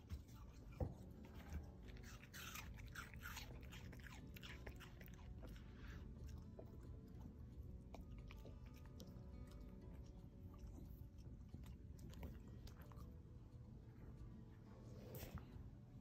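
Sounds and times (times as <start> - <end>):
dog crunching food: 0.4 - 13.1.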